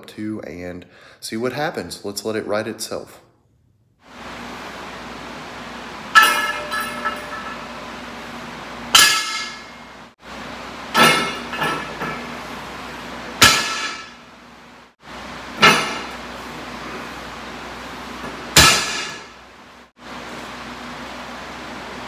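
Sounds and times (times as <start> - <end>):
barbell plates clanging on floor: 6.1 - 7.8, 11.0 - 12.3.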